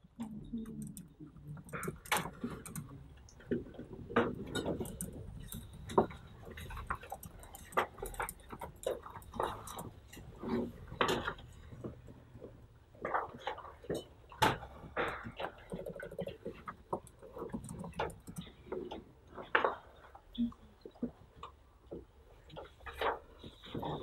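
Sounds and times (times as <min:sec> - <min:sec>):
small hard objects clicking: 0:00.0 - 0:10.4.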